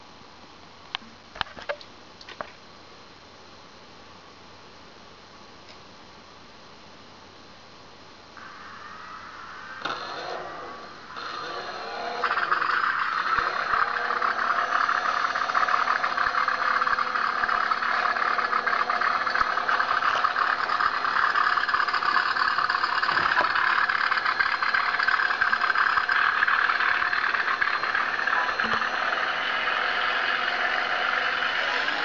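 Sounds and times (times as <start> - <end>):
model plane motor whirring: 9.8 - 32.0.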